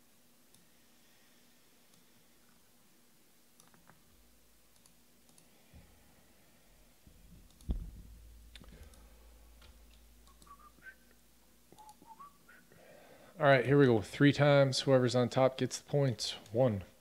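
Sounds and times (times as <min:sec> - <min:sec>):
thump: 0:07.7 - 0:08.1.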